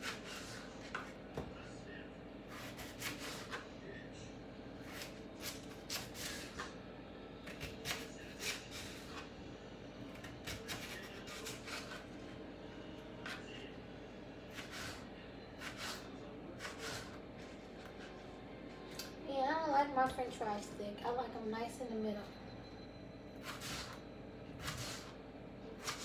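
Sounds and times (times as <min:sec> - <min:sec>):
steady low hum: 0:00.0 - 0:26.0
knife chopping on cutting board: 0:10.2 - 0:12.0.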